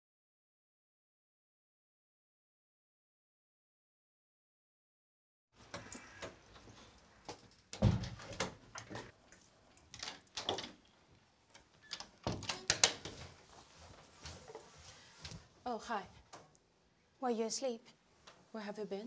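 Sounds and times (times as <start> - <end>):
front door opening and shutting: 5.6 - 9.2, 9.8 - 13.4
knocks and clatters of movement: 5.6 - 15.4.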